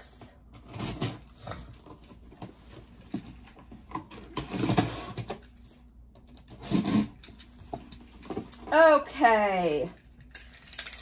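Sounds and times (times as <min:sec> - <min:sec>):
cardboard rustling and scraping: 0:00.5 - 0:08.9.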